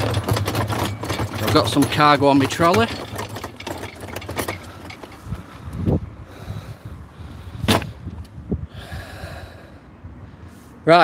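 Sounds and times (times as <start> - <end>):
trolley knocks: 0.0 - 5.2
hand trolley rattling over pavement: 0.0 - 5.7.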